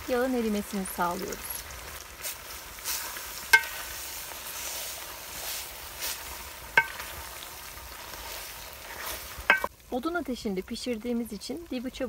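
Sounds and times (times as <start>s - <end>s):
faint fat sizzling: 0.0s - 12.0s
spoon stirring fat in pot: 2.2s - 9.7s
spoon knocking on metal pot: 6.8s - 7.0s.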